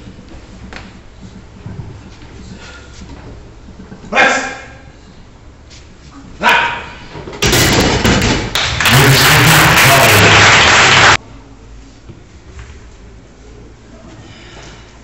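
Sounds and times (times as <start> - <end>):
people shouting and cheering: 8.8 - 11.2.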